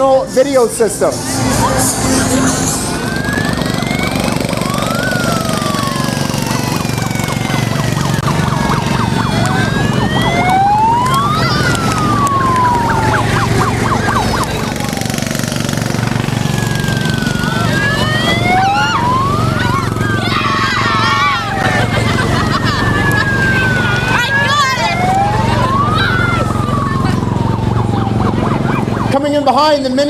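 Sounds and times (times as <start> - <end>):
sirens wailing: 0.0 - 30.0
small engines humming: 0.0 - 30.0.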